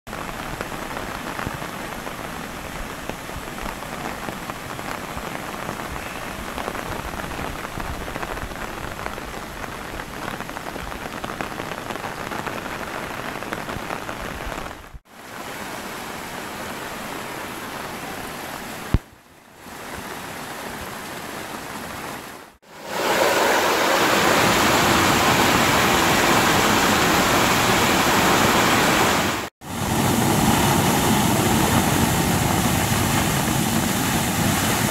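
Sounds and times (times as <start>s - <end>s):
heavy rain: 0.1s - 34.9s
floodwater rushing down gutter: 22.6s - 34.9s.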